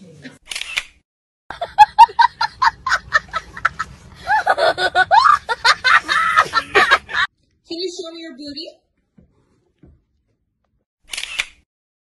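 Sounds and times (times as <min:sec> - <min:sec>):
person laughing: 0:01.5 - 0:07.3.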